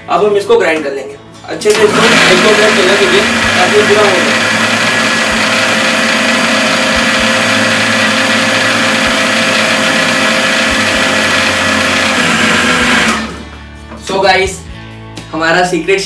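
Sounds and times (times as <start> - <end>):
mixer grinder motor whine: 1.7 - 13.6
churn of blended mix: 1.7 - 13.8.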